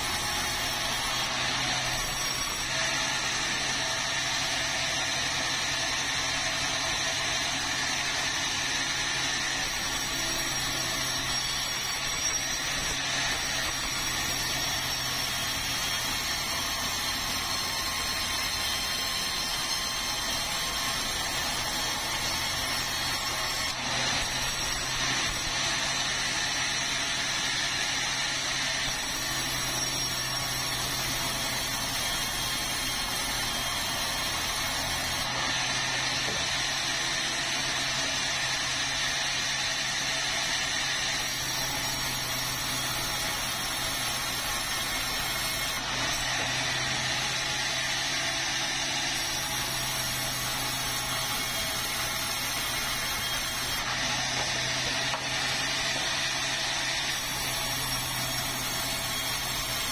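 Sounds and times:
bandsaw blade sawing wood: 0.0s - 59.9s.

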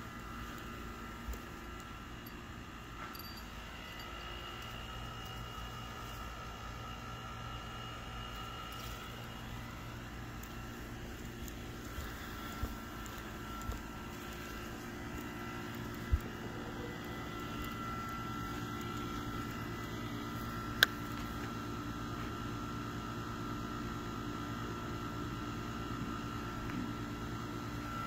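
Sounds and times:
faint steady tones: 0.0s - 21.5s
outdoor background hum: 0.0s - 28.0s.

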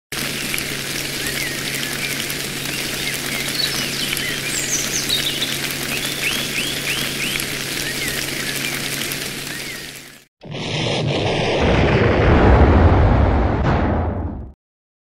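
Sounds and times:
birds chirping and calling: 1.1s - 10.2s.

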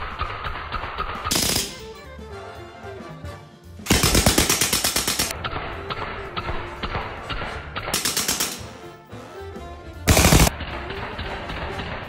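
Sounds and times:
background music: 0.0s - 12.0s.

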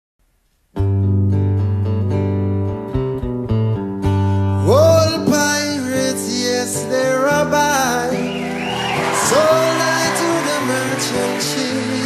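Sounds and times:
strummed acoustic guitar: 0.7s - 12.0s
man singing: 4.6s - 8.4s, 9.0s - 12.0s.

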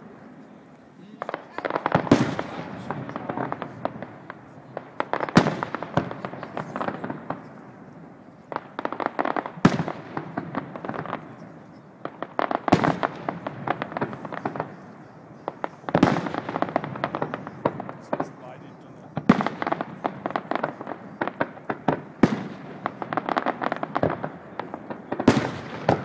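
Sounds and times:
fireworks crackling pops: 0.0s - 26.0s
fireworks booming: 1.0s - 26.0s.

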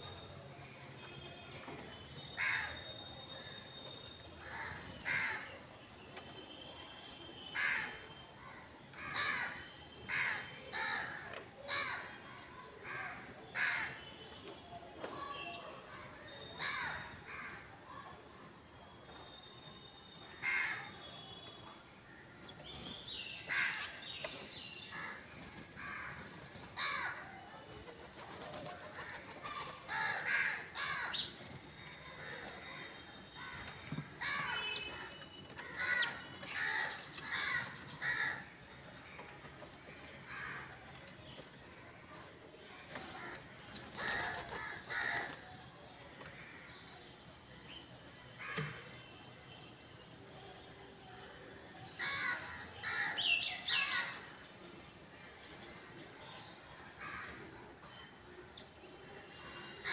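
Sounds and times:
crows cawing: 4.4s - 5.6s, 7.6s - 8.0s, 9.0s - 12.2s, 16.6s - 17.6s, 20.4s - 20.9s, 23.5s - 24.0s, 25.8s - 27.3s, 29.0s - 31.3s, 35.6s - 38.5s, 40.2s - 40.7s, 44.0s - 45.4s, 52.0s - 54.1s.

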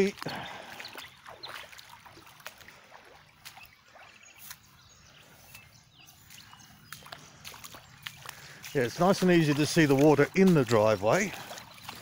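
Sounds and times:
footsteps sloshing through water: 0.0s - 12.0s.

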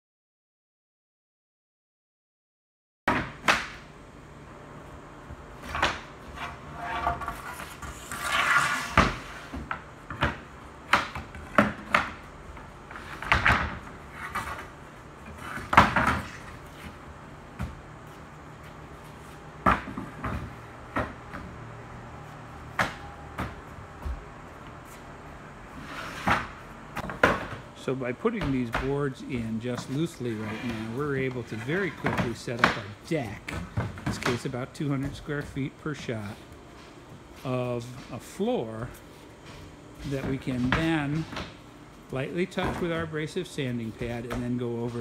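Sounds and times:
wooden boards knocking and clattering: 13.1s - 14.5s, 26.2s - 27.6s.

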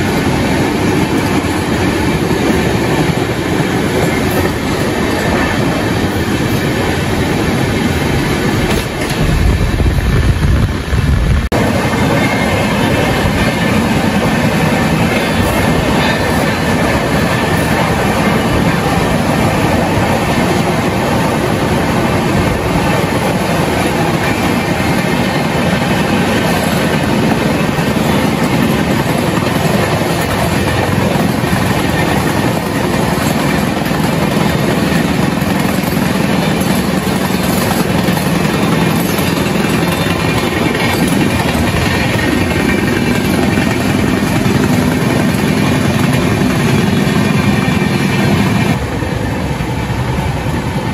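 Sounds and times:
wind at open door: 0.0s - 12.0s
second train passing alongside: 0.0s - 50.9s
train wheels rushing on rails: 0.0s - 50.9s.

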